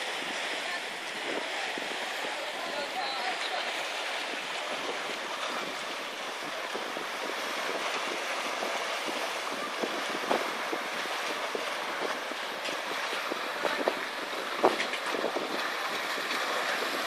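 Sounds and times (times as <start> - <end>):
sea water rushing: 0.0 - 17.0
small splashes and ticks: 14.6 - 17.0.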